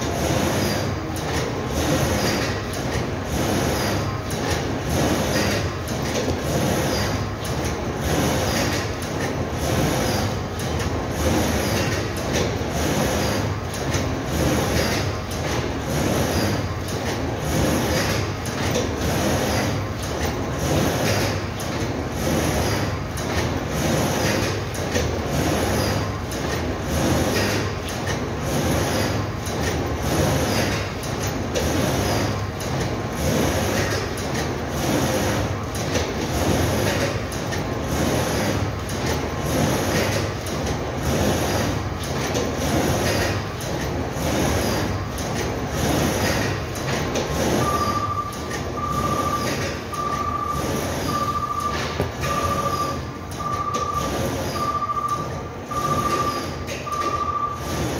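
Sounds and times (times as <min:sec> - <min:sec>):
factory machinery clattering: 0:00.0 - 0:57.9
high electronic beep: 0:47.6 - 0:57.6.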